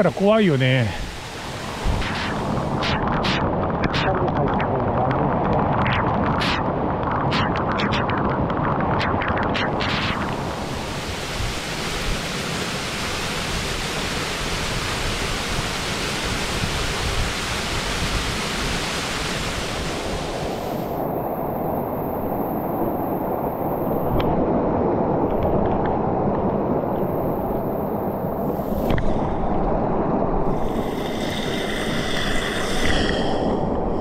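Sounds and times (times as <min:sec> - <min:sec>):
stream water rushing over rocks: 0:00.0 - 0:06.7, 0:09.7 - 0:21.1.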